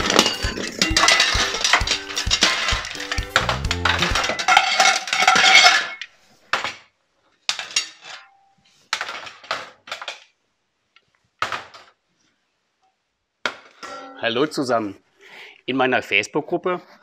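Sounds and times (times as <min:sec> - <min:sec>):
metal pots and utensils clattering: 0:00.0 - 0:06.8, 0:07.5 - 0:10.2, 0:13.8 - 0:14.2.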